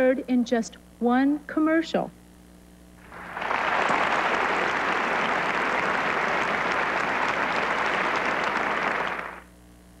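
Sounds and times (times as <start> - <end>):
audience applauding: 3.0 - 9.5.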